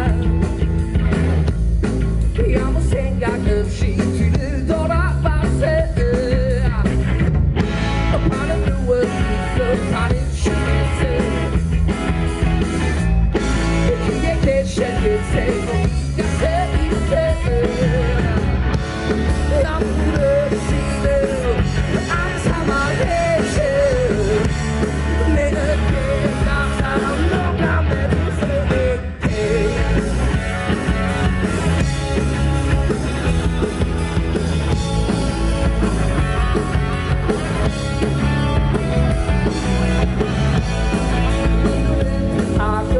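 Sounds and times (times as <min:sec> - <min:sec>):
man singing: 0:00.0 - 0:00.5, 0:02.3 - 0:07.2, 0:07.9 - 0:11.7, 0:13.6 - 0:30.4, 0:41.9 - 0:42.9
bass guitar: 0:00.0 - 0:42.9
drum kit: 0:00.0 - 0:42.9
electric guitar: 0:00.0 - 0:42.9.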